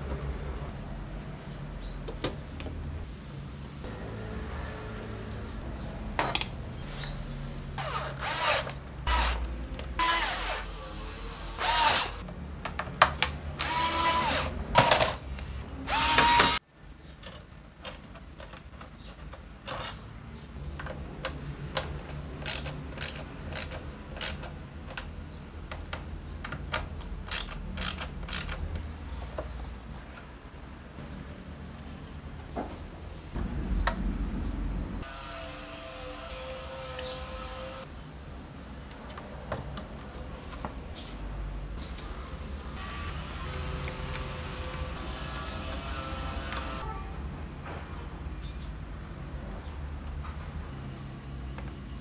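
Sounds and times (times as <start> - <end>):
power drill whirring: 7.8 - 12.2, 13.6 - 15.2, 15.9 - 16.6, 35.0 - 37.9, 41.8 - 46.8.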